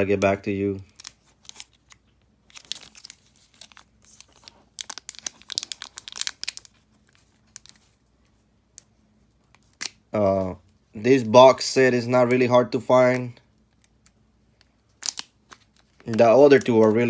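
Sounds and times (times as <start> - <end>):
plastic wrapper crinkling and tearing: 0.0 - 8.0, 13.6 - 17.0.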